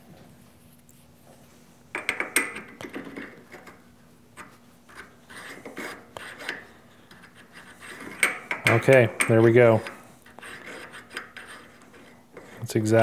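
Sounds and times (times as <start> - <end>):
metal rod clicking and scraping: 4.4 - 12.6.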